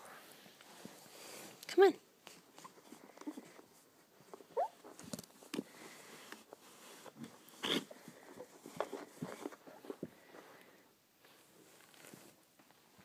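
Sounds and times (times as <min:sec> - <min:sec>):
puppy whining: 0:04.4 - 0:05.0.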